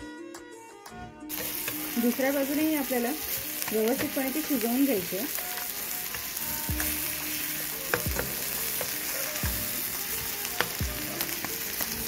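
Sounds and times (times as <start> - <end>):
fish sizzling in oil: 1.3 - 12.0.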